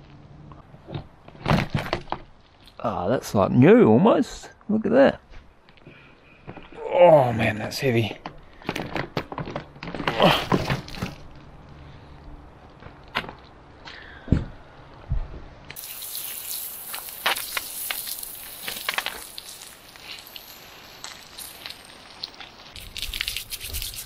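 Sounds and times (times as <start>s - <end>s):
water jet hissing on metal: 15.8s - 24.0s.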